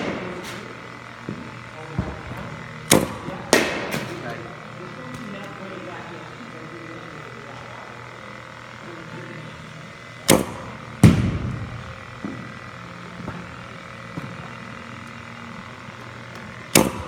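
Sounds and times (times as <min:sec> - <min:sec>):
bat cracking ball: 0:00.0 - 0:04.2, 0:10.2 - 0:12.6, 0:16.6 - 0:17.0
steady low hum: 0:00.0 - 0:17.0.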